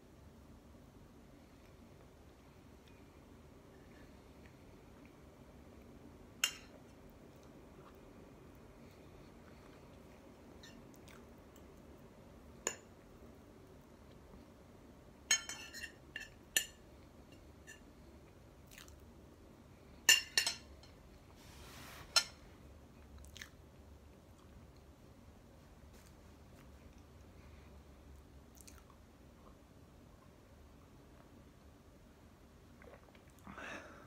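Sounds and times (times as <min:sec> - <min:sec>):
person chewing cake: 0:07.4 - 0:12.0, 0:18.6 - 0:19.0, 0:23.0 - 0:24.9, 0:28.5 - 0:29.6.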